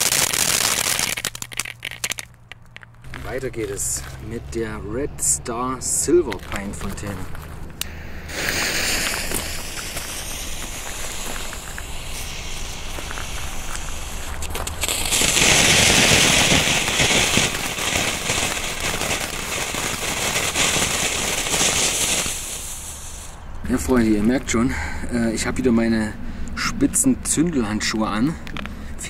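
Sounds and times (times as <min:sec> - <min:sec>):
firework fountain hissing: 0:00.0 - 0:02.3, 0:07.8 - 0:23.4
small crackles: 0:00.0 - 0:04.2, 0:06.3 - 0:24.5.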